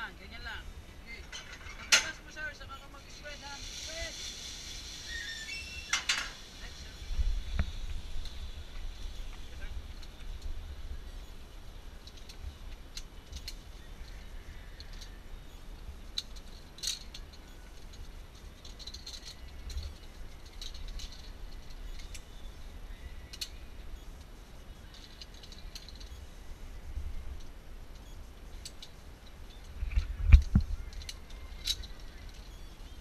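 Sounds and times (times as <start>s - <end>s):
metal harness hardware clicking: 1.2s - 2.4s, 12.0s - 13.6s, 16.1s - 22.4s, 27.4s - 32.6s
wind rumble on microphone: 5.9s - 15.2s, 29.6s - 33.0s.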